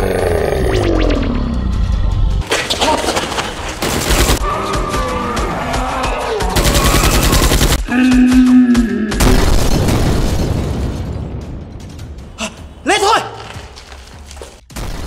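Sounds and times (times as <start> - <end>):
background music: 0.0 - 9.3, 10.5 - 15.0
rapid gunfire: 3.6 - 5.1, 6.6 - 7.8.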